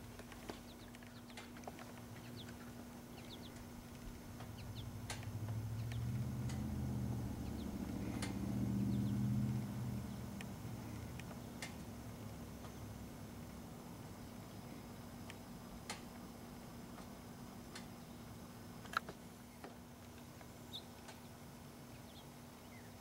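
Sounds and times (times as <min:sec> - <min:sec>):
low rumble: 0:04.4 - 0:11.3
light clicks: 0:08.1 - 0:08.5.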